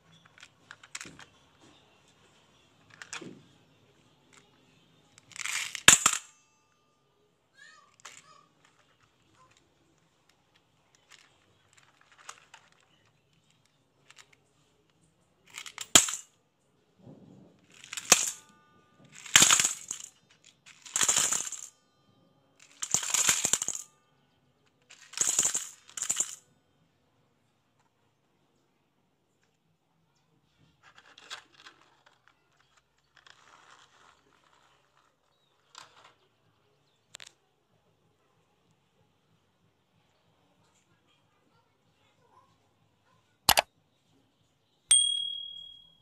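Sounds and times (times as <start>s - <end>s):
marbles clattering into metal bowl: 5.2s - 6.3s, 15.5s - 16.3s, 17.7s - 21.7s, 22.6s - 23.9s, 24.9s - 26.4s.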